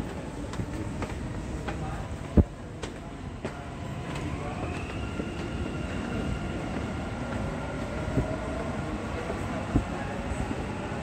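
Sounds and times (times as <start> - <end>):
train rumble: 0.0 - 11.0.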